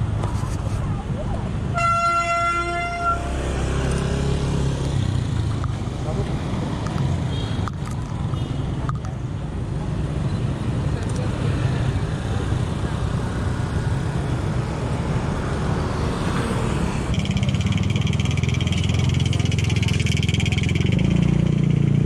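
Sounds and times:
motorcycle and car traffic: 0:00.0 - 0:22.0.

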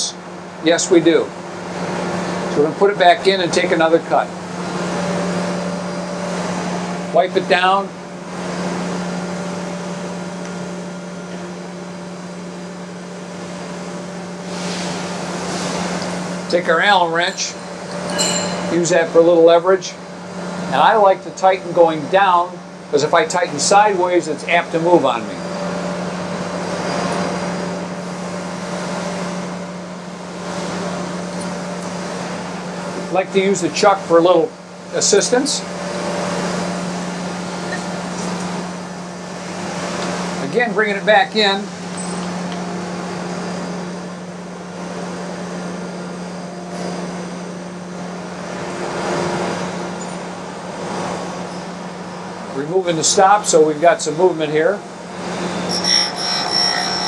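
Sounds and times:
grinding wheel hiss on metal: 0:55.7 - 0:57.0
surface grinder humming: 0:55.7 - 0:57.0.

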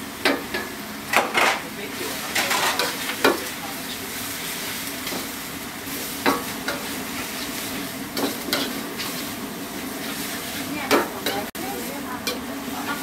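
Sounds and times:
food frying with sizzle: 0:00.0 - 0:13.0
cooking utensil scrapes: 0:02.2 - 0:03.5, 0:04.2 - 0:11.5.

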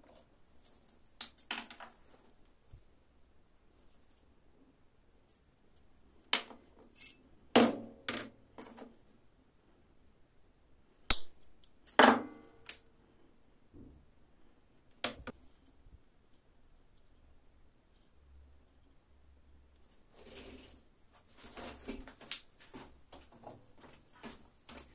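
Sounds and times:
short metallic ring: 0:06.9 - 0:07.2.

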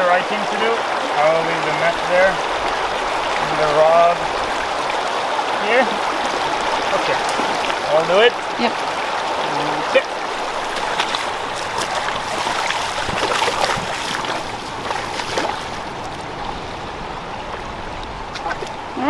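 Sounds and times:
river running over stones: 0:00.0 - 0:19.0
boots splashing in water: 0:06.1 - 0:16.2.

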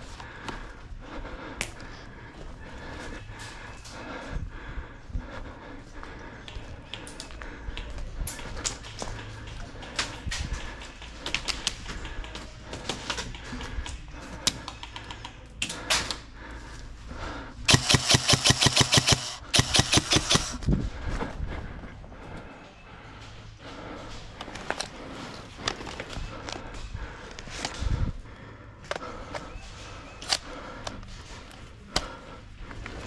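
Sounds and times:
faint clicks and taps: 0:06.4 - 0:16.2
airsoft gun firing bursts: 0:17.7 - 0:20.6.

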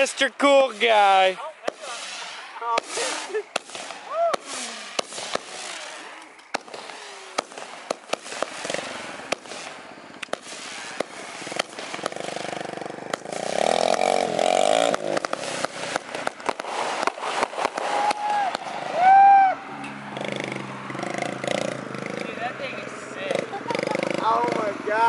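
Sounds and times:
sharp pops: 0:00.0 - 0:18.8
firework fountain crackling: 0:00.0 - 0:25.0
engine revving: 0:08.4 - 0:09.4, 0:11.0 - 0:16.1, 0:18.8 - 0:25.0.

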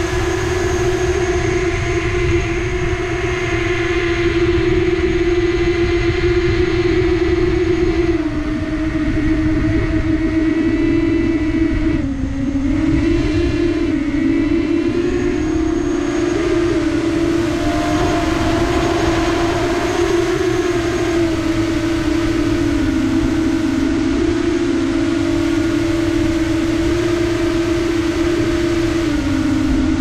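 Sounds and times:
drone propellers buzzing: 0:12.4 - 0:30.0
low rumble: 0:16.4 - 0:24.1.

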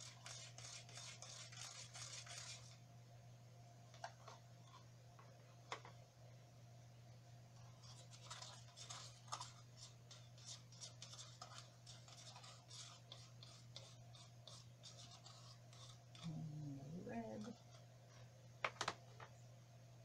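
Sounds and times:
low steady hum: 0:00.0 - 0:20.0
plastic scratching and tapping: 0:04.0 - 0:06.0.

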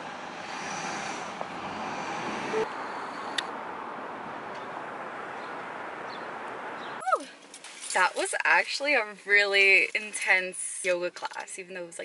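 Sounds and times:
car road noise: 0:00.0 - 0:08.6.

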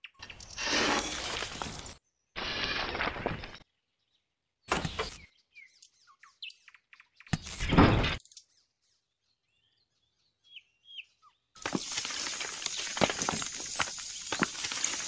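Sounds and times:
birds chirping: 0:00.0 - 0:15.0
stones rattling in a steel bowl: 0:11.7 - 0:15.0.

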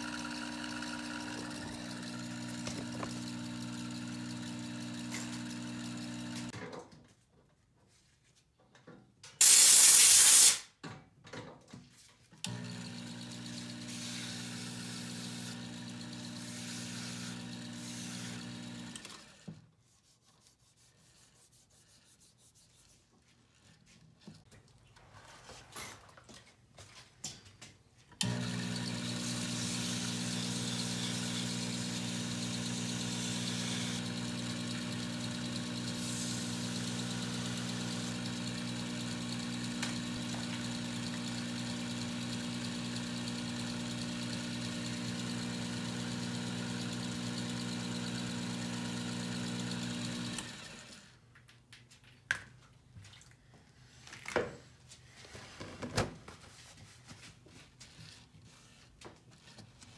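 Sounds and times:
lathe motor humming: 0:00.0 - 0:06.5, 0:12.5 - 0:19.1, 0:28.2 - 0:50.9.

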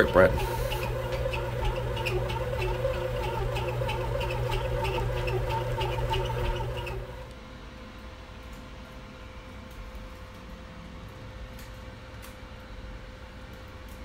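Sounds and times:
bread machine motor humming and ticking: 0:00.0 - 0:07.4.

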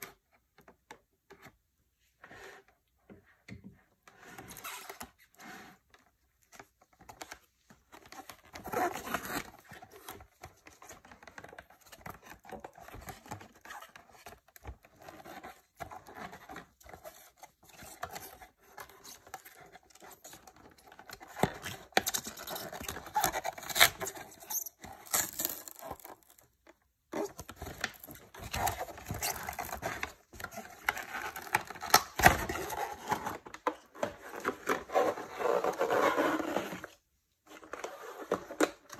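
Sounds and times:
cardboard packaging rustling: 0:18.0 - 0:36.9.

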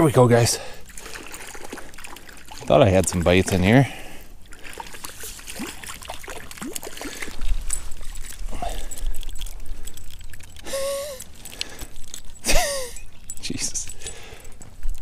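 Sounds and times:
fish splashing in water: 0:00.8 - 0:02.7, 0:04.4 - 0:11.8
rod and net clicks: 0:04.6 - 0:15.0.

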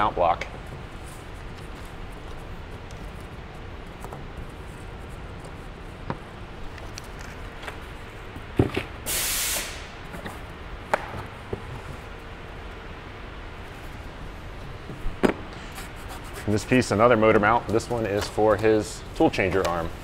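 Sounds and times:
steady background hiss: 0:00.0 - 0:20.0
short sharp hiss: 0:09.0 - 0:09.9.

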